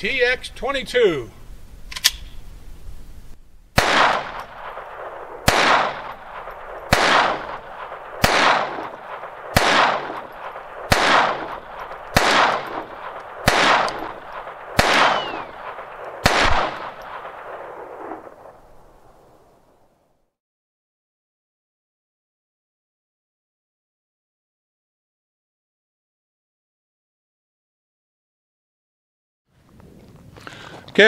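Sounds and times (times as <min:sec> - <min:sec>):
rifle shots with echo: 0:03.7 - 0:19.8.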